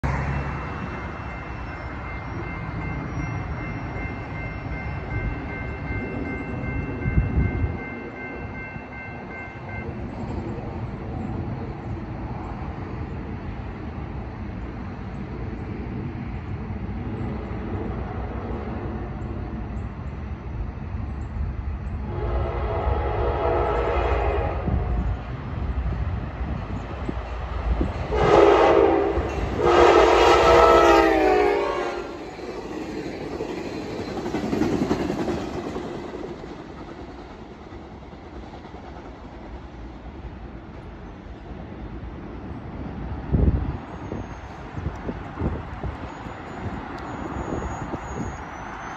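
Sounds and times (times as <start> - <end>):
crossing warning bell ringing: 0.0 - 10.6, 45.4 - 48.9
train horn blast: 22.0 - 25.1, 28.1 - 32.2.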